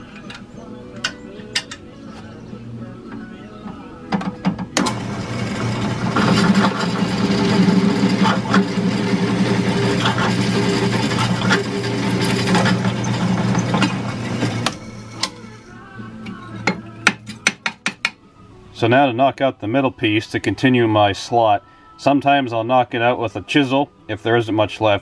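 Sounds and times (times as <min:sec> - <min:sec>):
drill press grinding through metal: 0:04.2 - 0:15.7.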